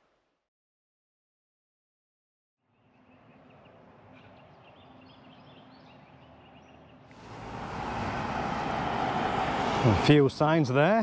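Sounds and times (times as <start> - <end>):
small birds chirping: 2.7 - 7.5.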